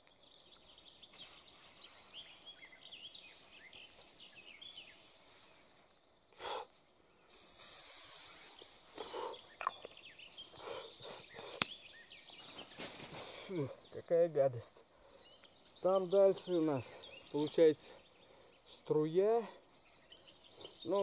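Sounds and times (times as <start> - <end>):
aerosol spray hissing: 1.1 - 5.8, 7.3 - 9.4.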